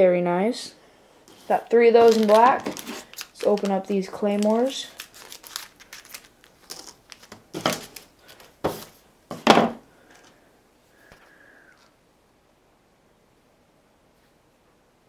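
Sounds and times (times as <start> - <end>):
plastic bag crinkling: 1.3 - 8.9
knife cutting plastic bag: 1.4 - 8.9.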